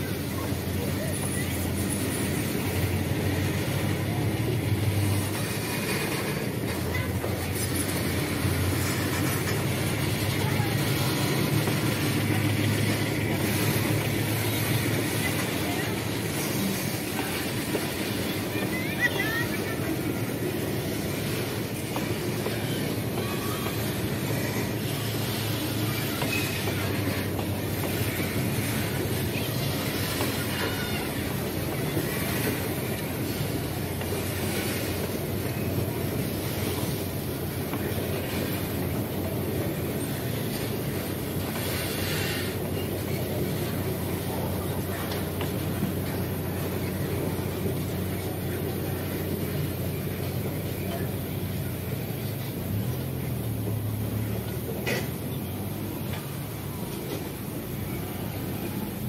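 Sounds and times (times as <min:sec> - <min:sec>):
freight wagon wheels on rail: 0:00.0 - 0:59.0
faint wheel squeal: 0:21.3 - 0:37.0.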